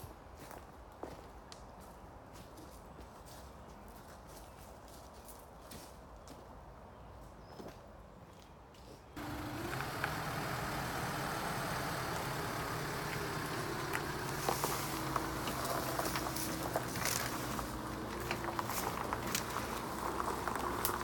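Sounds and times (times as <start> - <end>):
diesel engine running: 9.2 - 21.0.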